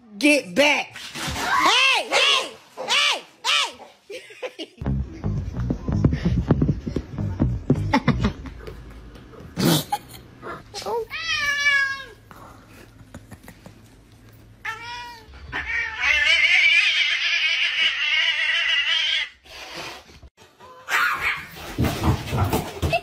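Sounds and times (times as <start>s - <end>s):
cat yowling and meowing: 14.6s - 19.3s.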